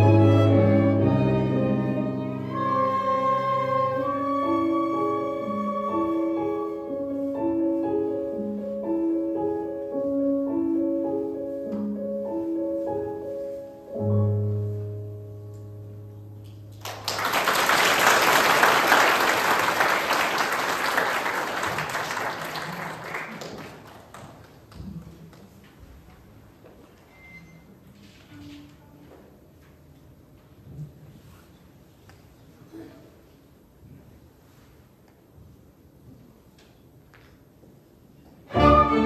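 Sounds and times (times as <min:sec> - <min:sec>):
orchestral music: 0:00.0 - 0:16.3, 0:38.5 - 0:39.0
applause: 0:16.7 - 0:24.8.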